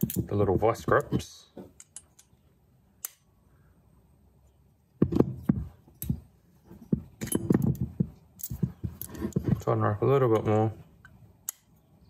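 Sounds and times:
metal tools clinking on wooden bench: 0.0 - 2.4, 5.0 - 10.6.

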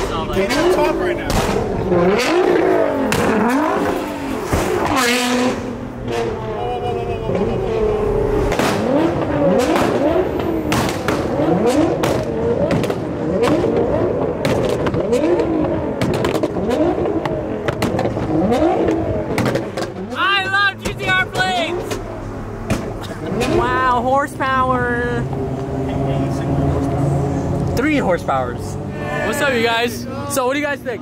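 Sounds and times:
exhaust pops and crackles: 0.0 - 6.4, 8.5 - 24.2
road and tyre noise: 0.0 - 31.0
sports car engines revving: 0.0 - 31.0.

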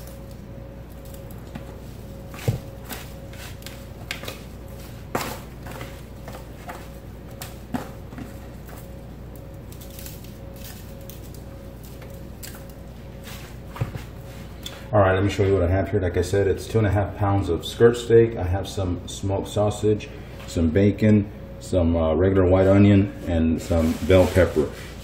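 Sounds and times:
faint steady hum: 0.0 - 25.0
foil pan crinkling: 23.7 - 25.0.

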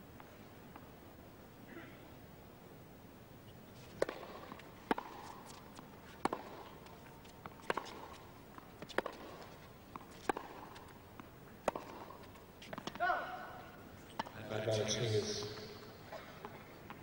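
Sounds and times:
tennis ball bouncing: 3.9 - 14.5
tennis racket striking ball: 4.0 - 8.2, 8.8 - 10.9, 11.6 - 13.4.

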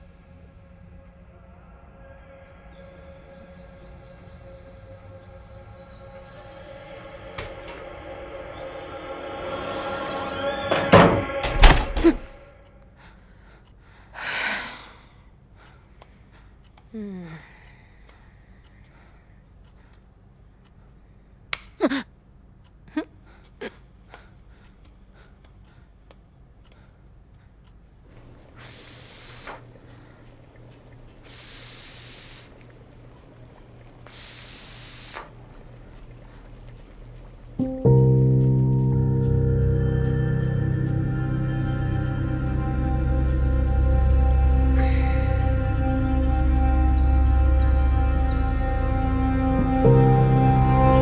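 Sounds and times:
steady musical drone: 0.0 - 13.0, 37.6 - 51.0
low steady hum: 0.0 - 51.0
door squeaking: 9.4 - 12.5
door banging shut: 10.0 - 12.4
woman breathing heavily: 12.8 - 20.1, 23.2 - 30.3
short breathy rush: 28.1 - 32.6.

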